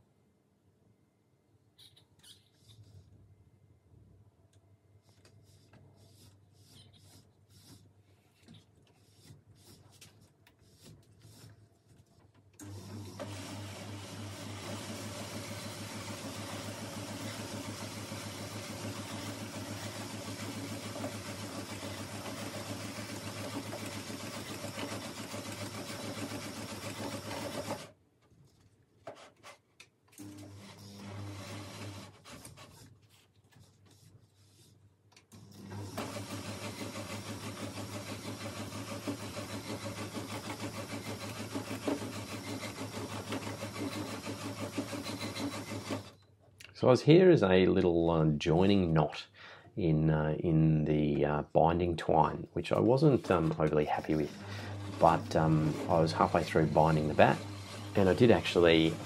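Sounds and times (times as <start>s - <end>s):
small electric motor humming: 54.0s - 59.0s.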